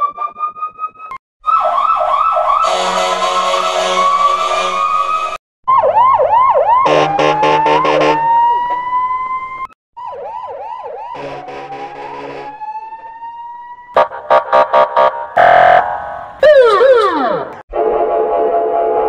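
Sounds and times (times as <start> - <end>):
police siren wailing and yelping: 1.4 - 17.6
pulsing horn blast: 2.6 - 5.0, 6.8 - 8.3, 11.2 - 12.6, 14.0 - 16.7.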